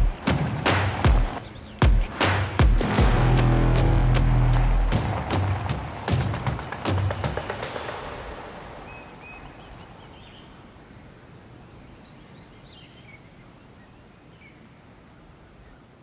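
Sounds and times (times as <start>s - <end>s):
music track: 0.0s - 9.2s
bird chirps: 1.3s - 2.1s, 6.6s - 15.9s
soft steady hiss: 7.6s - 16.0s.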